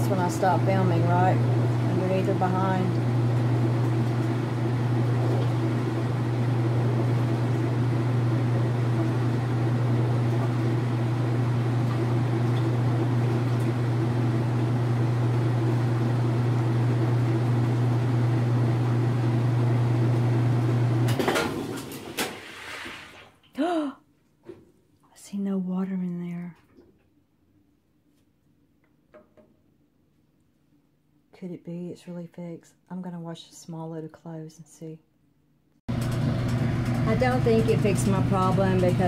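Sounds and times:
washing machine spinning: 0.0 - 22.8, 35.9 - 39.0.

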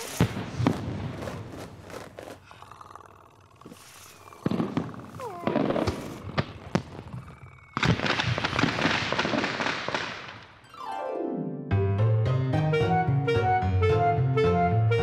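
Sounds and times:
fireworks bangs and pops: 0.0 - 2.4, 3.7 - 10.6
fireworks crackling: 0.0 - 2.5, 3.6 - 10.6.

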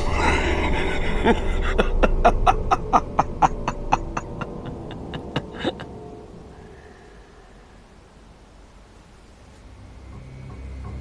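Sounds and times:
man laughing: 0.0 - 6.1.

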